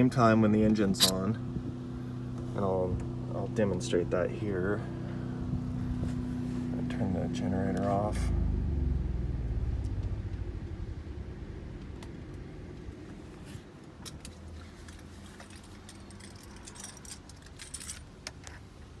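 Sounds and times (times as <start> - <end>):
generator hum running down: 0.0 - 13.4
keys jangling: 14.0 - 18.6.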